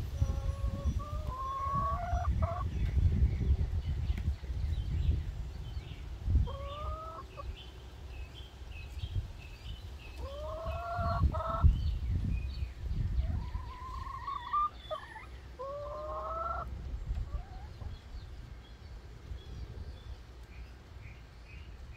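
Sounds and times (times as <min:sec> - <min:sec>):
hens calling: 0:00.0 - 0:02.7, 0:06.4 - 0:07.5, 0:10.2 - 0:11.8, 0:13.2 - 0:18.1.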